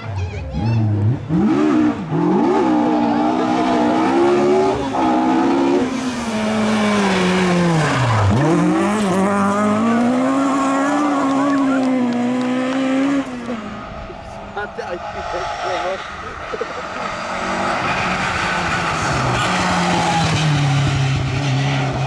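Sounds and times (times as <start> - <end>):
car engine revving hard: 0.5 - 22.0.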